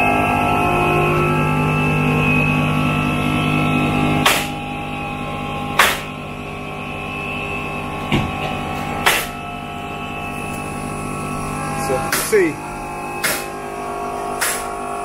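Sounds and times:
steady droning hum: 0.0 - 15.0
pneumatic nailer shots: 4.2 - 4.6, 5.8 - 6.2, 9.0 - 9.4, 12.1 - 12.4, 13.2 - 13.6, 14.4 - 14.8.

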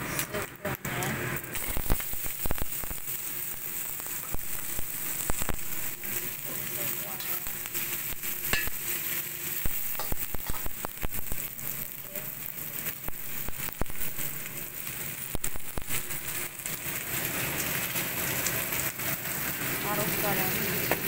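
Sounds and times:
vegetables sizzling in a wok: 0.0 - 21.0
spatula scraping and clacking on wok: 4.1 - 11.8.

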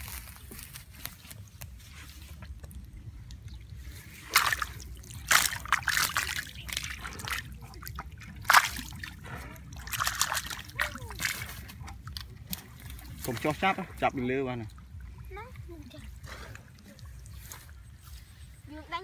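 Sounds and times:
fish splashing in shallow water: 0.0 - 18.7.

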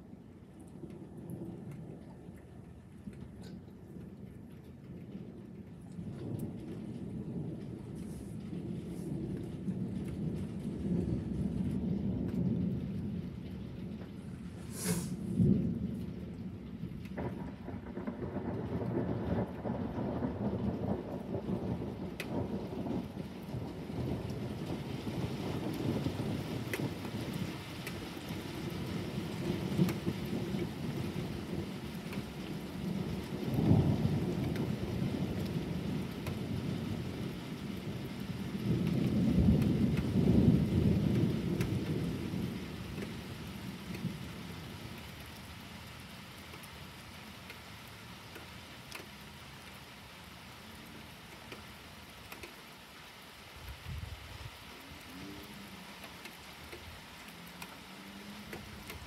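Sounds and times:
thunder rumbling: 0.0 - 45.6, 53.6 - 59.0
steady rain: 0.0 - 59.0
sharp thunder crack: 17.2 - 23.0.

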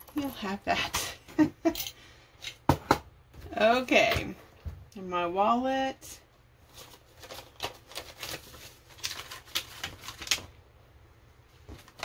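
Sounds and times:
paper banknotes rustling: 6.7 - 10.5.

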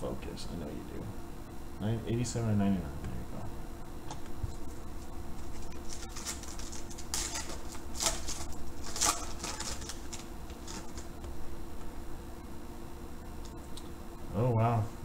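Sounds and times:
foil wrapper crinkling and tearing: 5.4 - 11.1.

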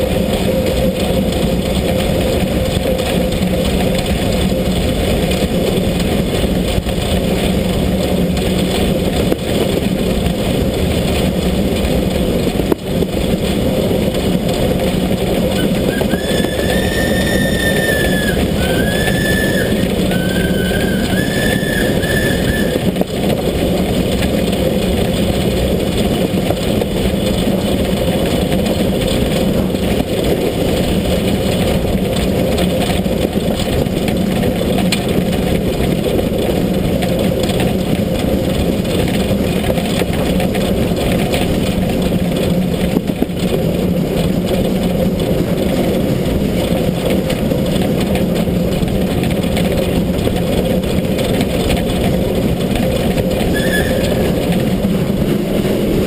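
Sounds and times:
locomotive wheels rumbling on rails: 0.0 - 56.0
high wavering squeal: 15.6 - 23.0, 53.5 - 54.6.

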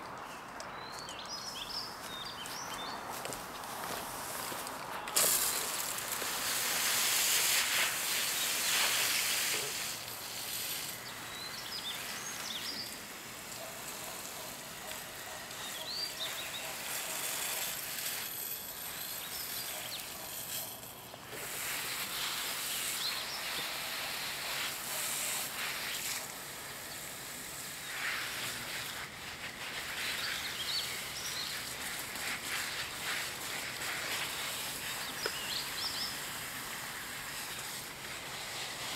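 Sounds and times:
songbirds chirping: 0.0 - 5.8, 10.8 - 17.6, 33.8 - 36.4
hose spray hissing: 3.2 - 38.9.

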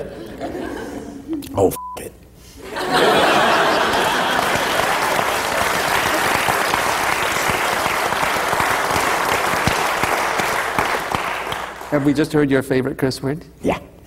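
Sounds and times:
audience laughing: 0.0 - 1.3, 2.6 - 7.0
audience applauding: 2.8 - 12.4.

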